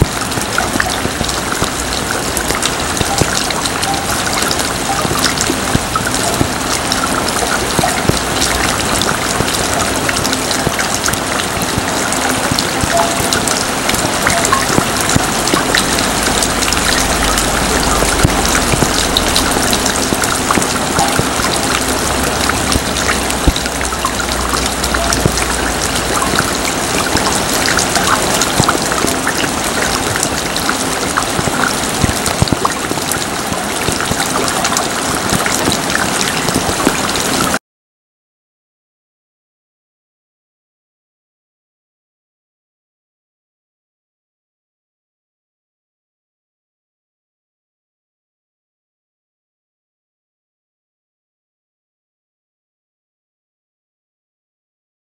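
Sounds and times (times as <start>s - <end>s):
heavy rain: 0.0s - 37.6s.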